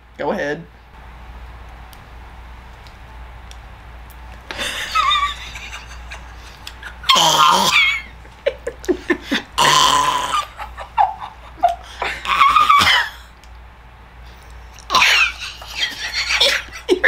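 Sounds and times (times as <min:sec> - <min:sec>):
women squealing: 0:07.0 - 0:08.1, 0:10.3 - 0:13.2.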